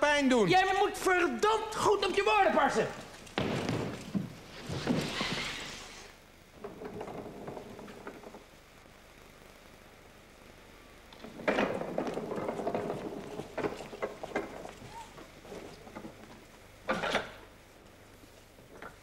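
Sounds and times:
wheeled steps rolling on wooden stage: 1.7 - 8.5, 11.1 - 17.2
footsteps: 2.8 - 6.1, 12.0 - 16.6.

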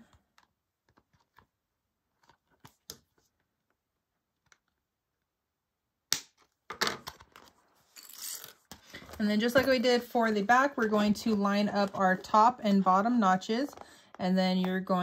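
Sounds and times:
handling sounds: 6.8 - 12.5.

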